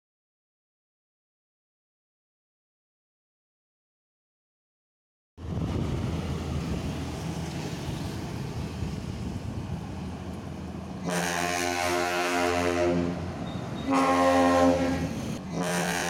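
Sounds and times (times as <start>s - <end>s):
traffic rumble: 5.4s - 15.7s
bus air horn blasts: 11.0s - 16.0s.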